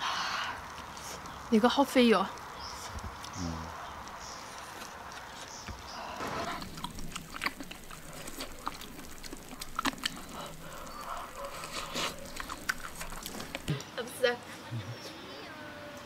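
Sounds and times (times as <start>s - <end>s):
person chewing and slurping: 6.2s - 13.8s
wet smacks and clicks: 6.5s - 13.9s.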